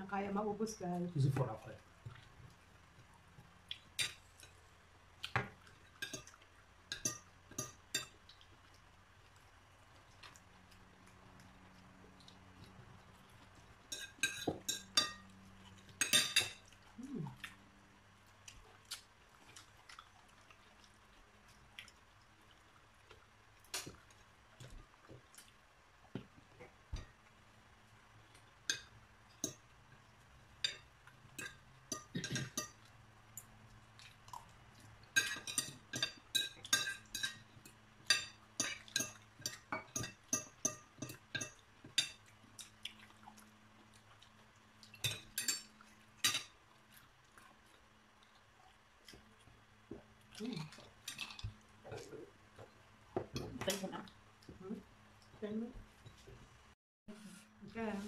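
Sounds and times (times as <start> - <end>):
cutlery clinking on plates: 6.9 - 8.2, 13.9 - 15.3, 16.0 - 16.6, 31.4 - 32.8, 35.2 - 37.4, 38.0 - 42.2, 45.0 - 46.5.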